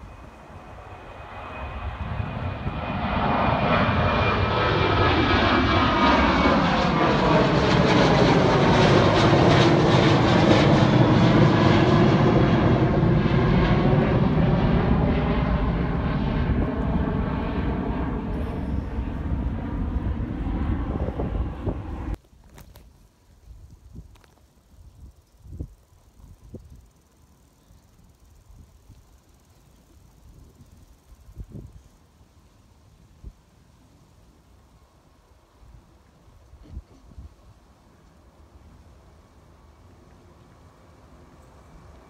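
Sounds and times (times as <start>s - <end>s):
jet airliner passing overhead: 0.0s - 22.2s, 34.3s - 42.0s.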